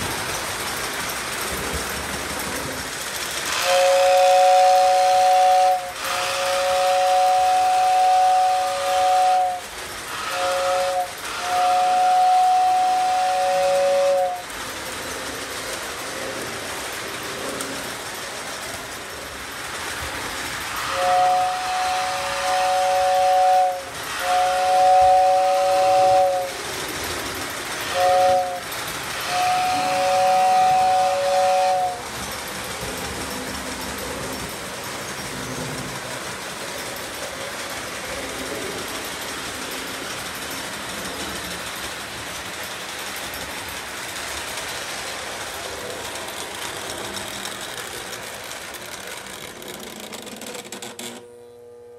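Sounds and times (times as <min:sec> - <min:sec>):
toy train rolling on track: 0:00.0 - 0:51.5
toy train whistle blasts: 0:03.5 - 0:14.5, 0:20.7 - 0:26.6, 0:27.8 - 0:32.1.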